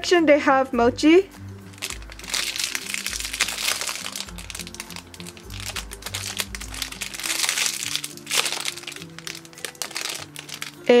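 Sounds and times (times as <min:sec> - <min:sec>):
background music with bass: 0:00.0 - 0:07.6
plastic bag crinkling: 0:01.6 - 0:11.0.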